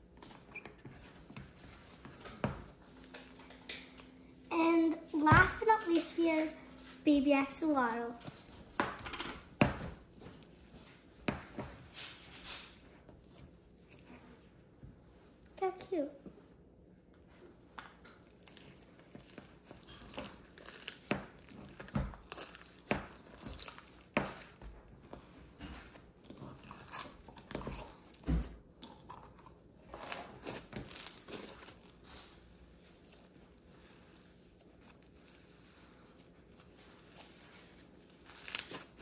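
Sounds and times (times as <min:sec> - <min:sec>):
slime crackling and popping: 0:18.0 - 0:24.6, 0:28.8 - 0:39.0.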